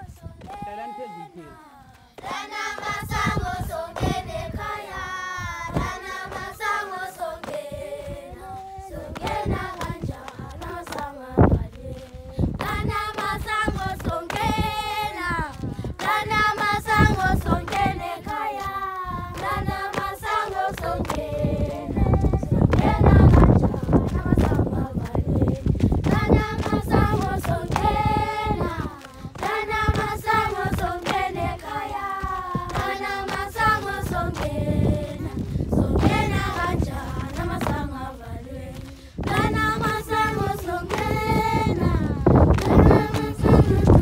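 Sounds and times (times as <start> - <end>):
children singing in chorus: 0.8 - 11.8, 12.6 - 38.7, 39.3 - 44.0
hand claps keeping time: 9.2 - 14.7, 15.4 - 18.8, 19.4 - 37.9, 38.8 - 44.0.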